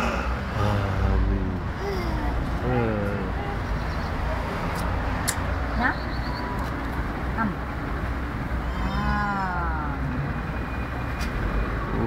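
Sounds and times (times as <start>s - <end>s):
drawn-out vocal call: 0.0s - 4.2s
low traffic rumble: 0.0s - 12.0s.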